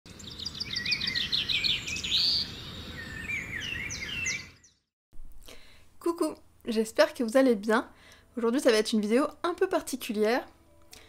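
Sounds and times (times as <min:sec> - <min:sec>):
birds singing: 0:00.1 - 0:04.9.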